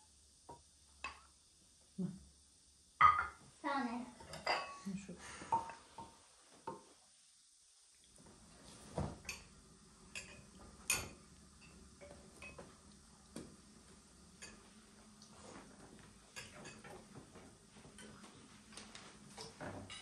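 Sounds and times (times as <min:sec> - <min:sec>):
spoons clinking on ceramic dishes: 0:04.2 - 0:04.8.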